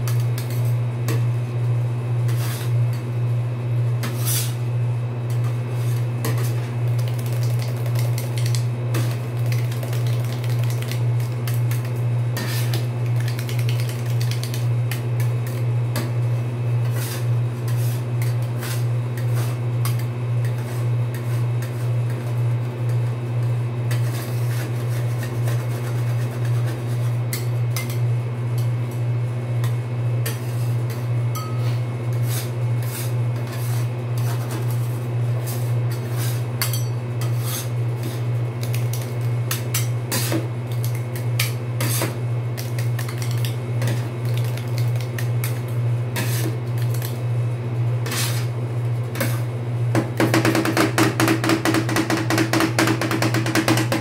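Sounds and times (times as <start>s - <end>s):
metal spatulas scraping cold plate: 31.4s - 34.8s, 35.4s - 38.2s, 41.8s - 42.2s, 46.2s - 46.5s, 48.0s - 48.5s.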